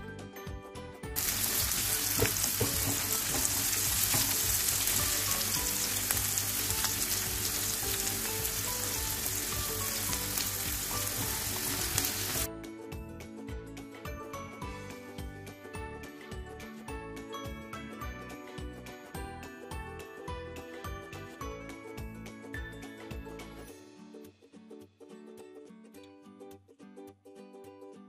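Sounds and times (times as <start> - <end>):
food sizzling in hot oil: 1.2 - 12.5.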